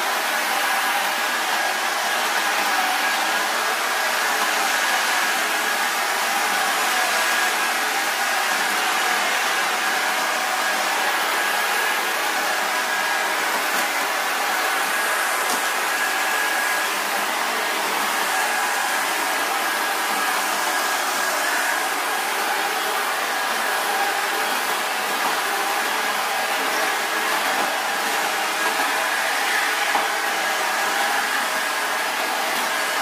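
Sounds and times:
vacuum cleaner running: 0:00.0 - 0:33.0.

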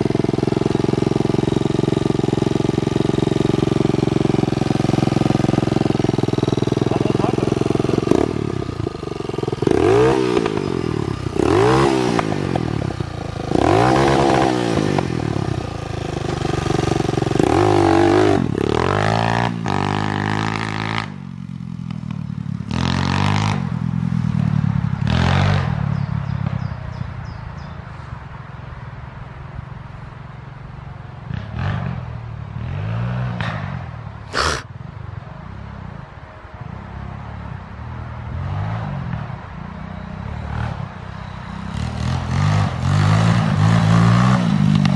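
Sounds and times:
motorbike engine revving: 0:00.0 - 0:26.0, 0:34.3 - 0:34.7, 0:41.7 - 0:44.9.

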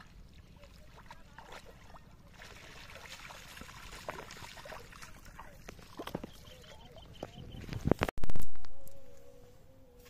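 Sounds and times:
water splashing and trickling: 0:00.0 - 0:08.1.

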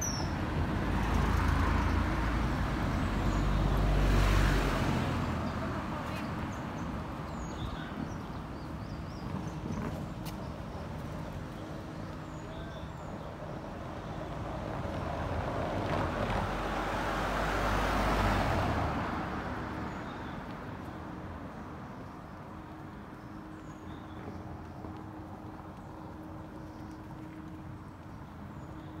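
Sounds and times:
vehicle driving past: 0:00.7 - 0:06.0.

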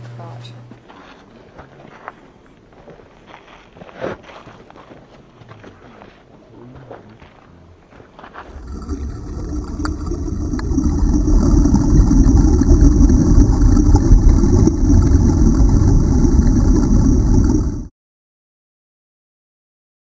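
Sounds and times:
muffled underwater water churning: 0:08.5 - 0:17.9.

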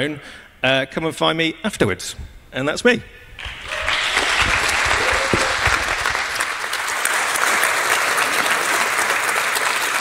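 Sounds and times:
low thumps: 0:03.2 - 0:06.5
audience applauding: 0:03.4 - 0:10.0.

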